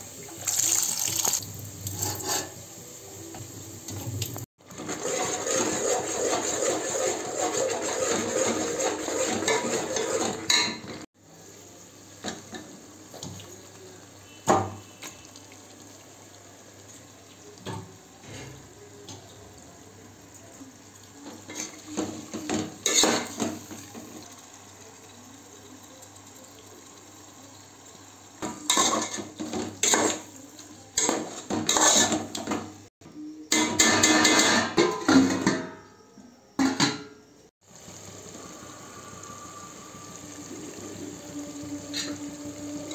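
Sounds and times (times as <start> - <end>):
metal spoons scraping a cooking pot: 1.9 - 2.6, 4.7 - 10.9, 31.0 - 32.3.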